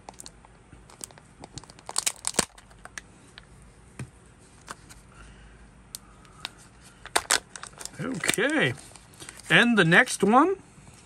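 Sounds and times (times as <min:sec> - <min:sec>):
plastic packaging crinkling: 0:00.0 - 0:03.0, 0:07.0 - 0:09.6.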